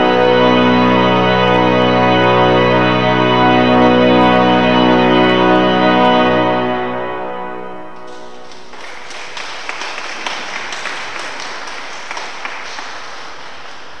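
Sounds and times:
pipe organ chord: 0.0s - 14.0s
audience applause: 8.0s - 14.0s.

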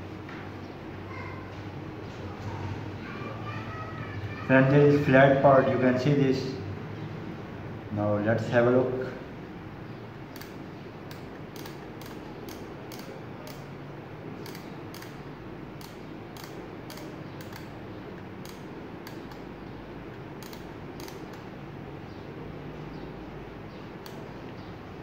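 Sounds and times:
steady background noise: 0.0s - 25.0s
solder feed clicking: 10.3s - 13.7s, 14.4s - 15.2s, 15.8s - 19.5s, 20.1s - 21.5s, 24.0s - 24.6s.

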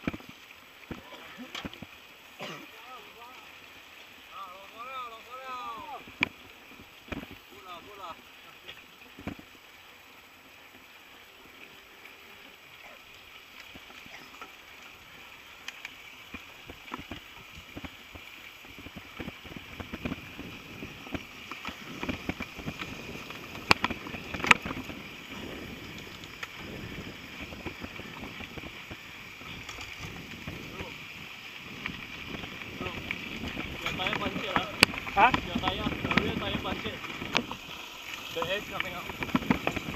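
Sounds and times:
bike rolling on dirt trail: 0.0s - 39.9s
bike rattles and knocks: 18.8s - 28.8s, 29.5s - 30.6s, 31.7s - 37.5s, 38.4s - 39.9s.

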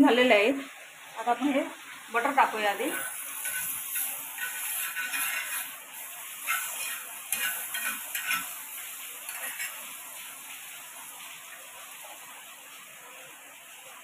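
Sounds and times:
butter sizzling: 0.0s - 14.0s
metal spatula scraping: 2.5s - 10.0s.

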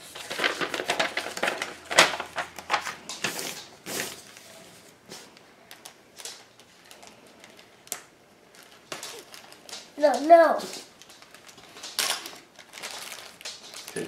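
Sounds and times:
paper and cardboard rustling: 0.0s - 5.3s, 8.5s - 14.0s.

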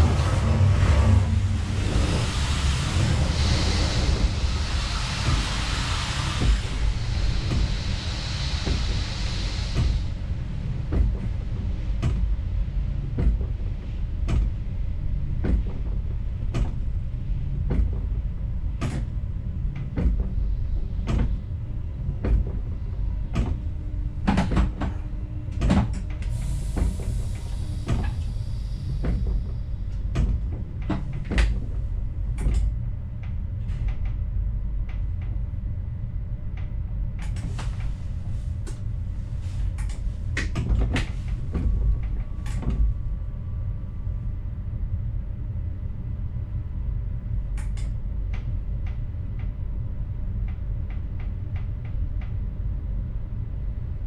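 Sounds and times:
low train rumble: 0.0s - 54.0s
broad hiss: 1.8s - 10.1s
sharp clicks and knocks: 12.0s - 12.3s, 23.3s - 23.6s, 39.7s - 42.9s.

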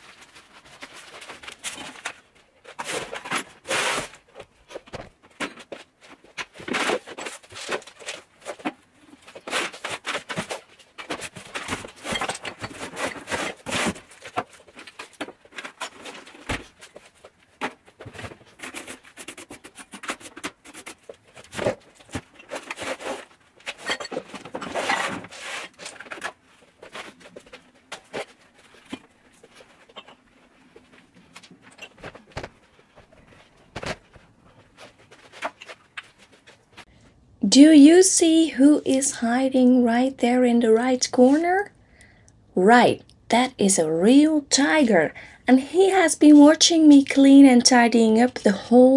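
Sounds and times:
small objects clattering: 5.2s - 34.2s.

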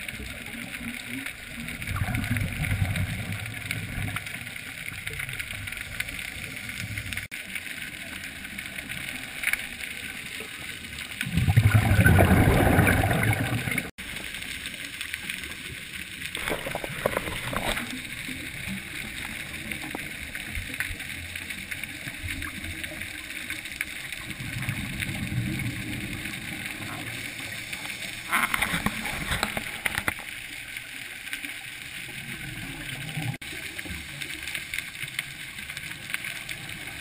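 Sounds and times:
underwater rumble: 0.0s - 37.0s
regulator exhaust bubbles: 11.2s - 13.9s
short bubbling: 11.2s - 13.9s, 16.4s - 18.1s.

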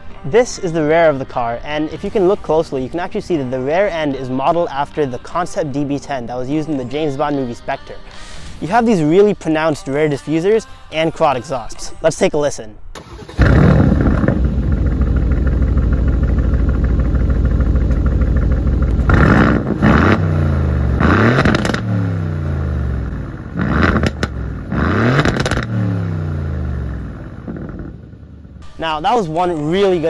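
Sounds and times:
car engine idling and revving: 13.0s - 28.7s.

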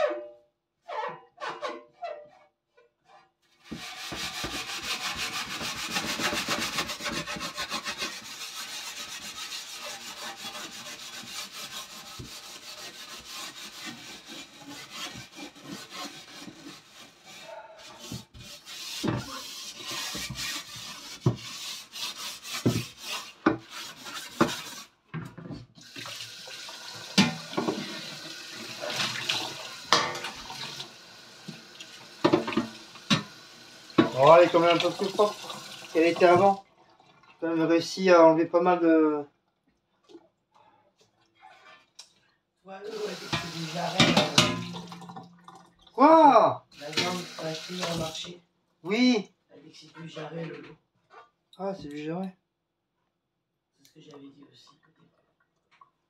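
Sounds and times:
tap water running: 3.6s - 17.4s, 18.0s - 37.7s, 42.9s - 46.1s, 46.7s - 48.3s
scouring pad scrubbing oven tray: 3.6s - 25.0s, 27.0s - 36.6s, 42.8s - 45.1s, 46.8s - 48.3s.

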